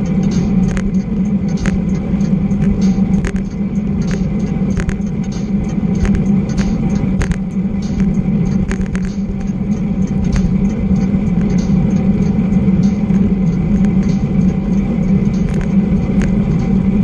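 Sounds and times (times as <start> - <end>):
sharp rattling clicks: 0.0 - 17.0.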